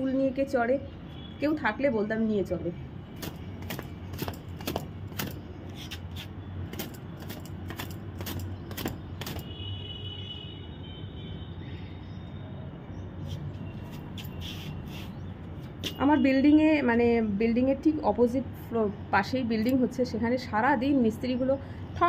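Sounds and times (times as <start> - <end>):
bangles clinking: 3.2 - 9.6.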